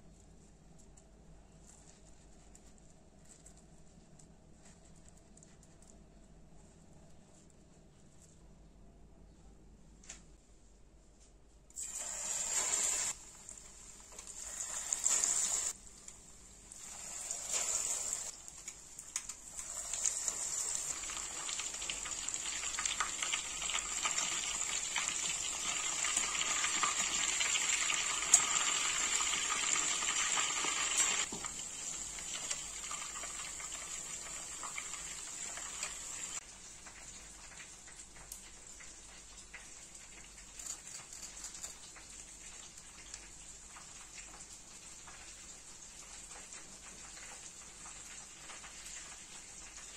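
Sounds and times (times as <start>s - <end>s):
food sizzling in hot oil: 11.8s - 41.0s, 41.7s - 49.9s.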